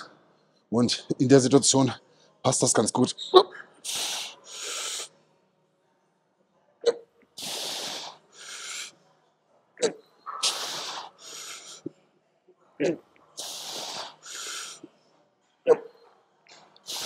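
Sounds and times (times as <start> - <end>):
man breathing hard: 10.4 - 11.8, 13.4 - 14.9.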